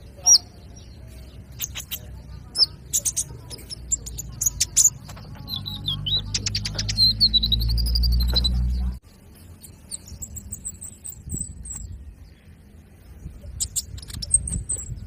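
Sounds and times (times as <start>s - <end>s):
bird twittering: 0.0s - 15.0s
sunbird chirping: 0.0s - 15.0s
bird warbling: 1.6s - 8.8s.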